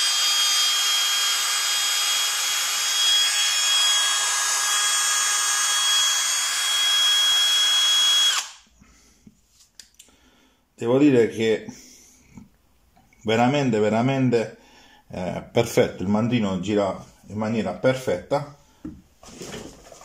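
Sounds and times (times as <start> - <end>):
cordless drill running: 0.0 - 8.6.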